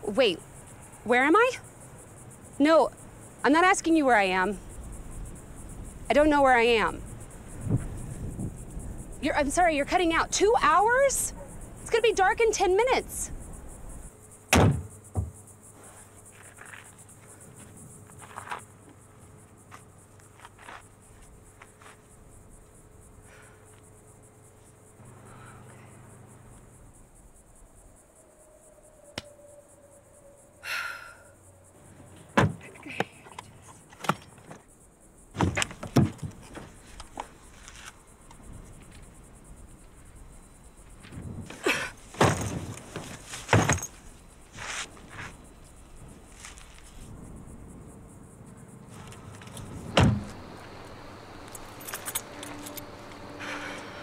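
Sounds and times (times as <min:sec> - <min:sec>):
crickets chirring: 0:00.0 - 0:54.0
thunks and knocks at car: 0:14.5 - 0:15.4, 0:32.3 - 0:32.7, 0:35.4 - 0:36.7, 0:41.0 - 0:44.0, 0:49.8 - 0:50.4.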